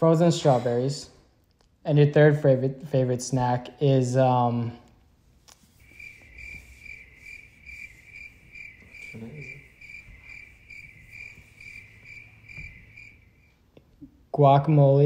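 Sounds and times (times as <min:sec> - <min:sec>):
cricket chirping: 0:05.5 - 0:13.6.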